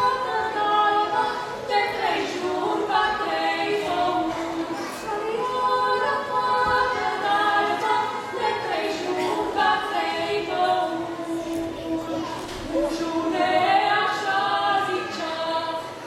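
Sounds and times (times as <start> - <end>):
women singing unaccompanied: 0.0 - 16.0.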